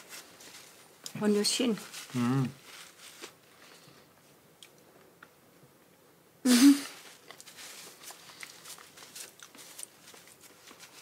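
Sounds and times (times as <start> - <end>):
breathy voiced hum: 6.4 - 7.0.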